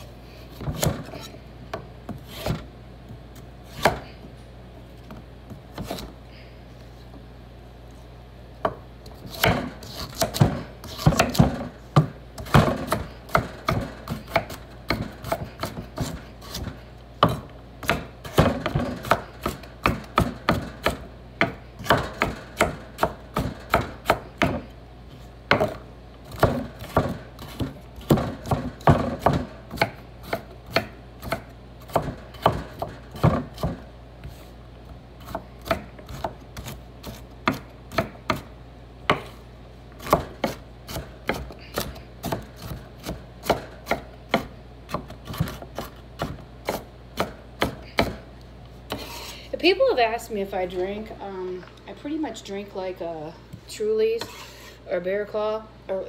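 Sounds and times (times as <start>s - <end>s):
knife chopping on cutting board: 3.7s - 4.1s, 8.6s - 24.7s, 25.5s - 34.4s, 35.2s - 38.5s, 39.1s - 39.4s, 40.0s - 48.2s.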